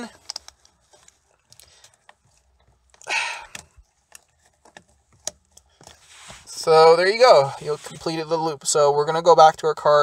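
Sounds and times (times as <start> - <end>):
plastic connectors clicking: 0.1 - 0.7.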